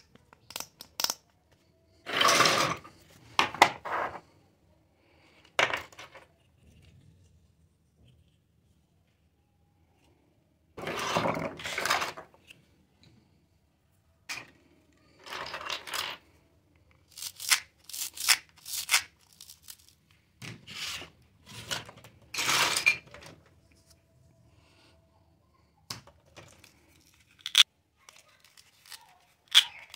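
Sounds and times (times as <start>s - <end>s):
plastic toys rubbing and scraping: 1.9s - 4.4s, 10.8s - 12.7s, 15.1s - 16.4s, 17.0s - 24.0s, 26.3s - 29.9s.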